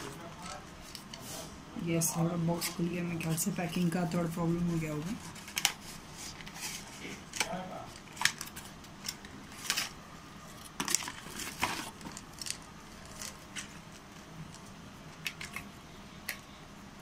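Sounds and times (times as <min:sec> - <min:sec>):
paper packaging rustling: 0:04.7 - 0:14.6.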